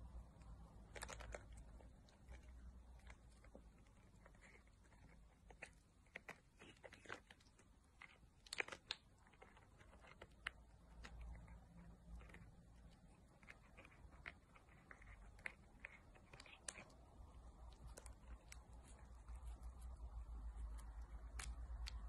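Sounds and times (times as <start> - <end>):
cat chewing plastic packet: 0.6 - 22.0.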